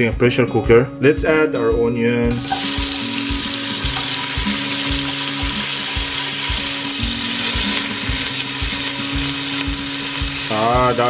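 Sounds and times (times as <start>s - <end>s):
onion sizzling in hot oil: 2.3s - 11.0s.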